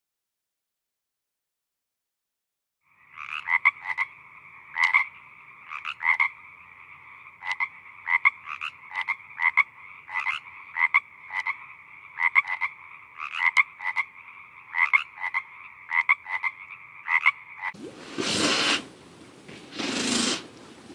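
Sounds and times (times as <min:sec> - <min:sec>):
frog chorus: 0:02.8 - 0:17.8
frog clicking croaks: 0:03.0 - 0:17.8.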